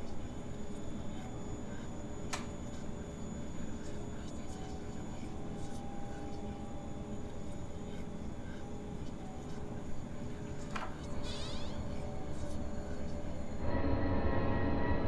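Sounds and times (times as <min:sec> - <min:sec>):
faint sustained tones: 0:02.8 - 0:15.0.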